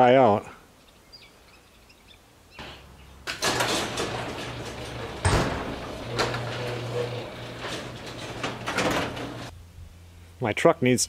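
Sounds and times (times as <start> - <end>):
garage door mechanism rattling: 2.6 - 9.5
motor hum: 2.6 - 9.6.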